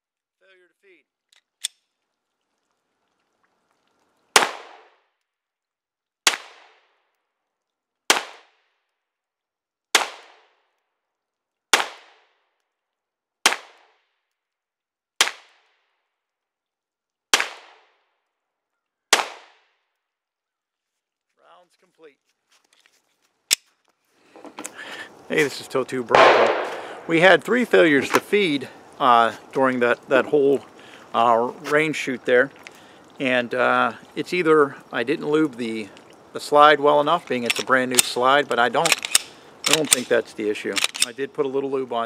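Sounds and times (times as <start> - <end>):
gunshots with echo: 26.1 - 27.2
pistol slide metallic clicks: 38.9 - 40.0.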